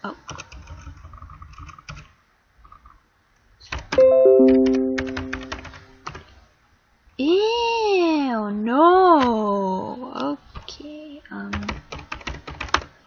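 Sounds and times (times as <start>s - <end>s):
electronic notification chime: 4.0s - 6.0s
keyboard keys clicking: 4.0s - 6.2s.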